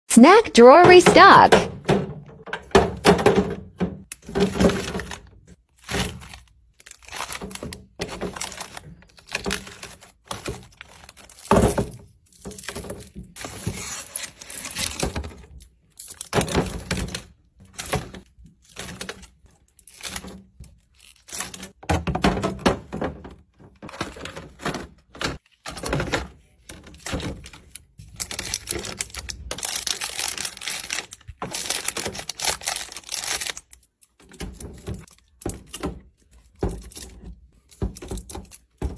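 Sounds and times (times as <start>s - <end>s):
items thunking against plastic bins: 1.2s - 6.3s, 7.3s - 10.7s, 21.6s - 27.7s, 34.2s - 38.9s
plastic wrappers crinkling: 27.6s - 33.9s.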